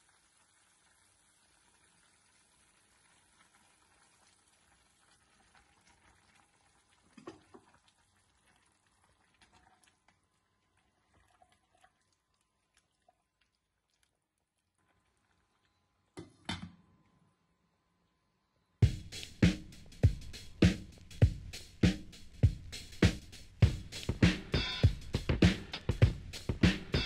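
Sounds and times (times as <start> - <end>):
pot simmering: 0.0 - 16.4.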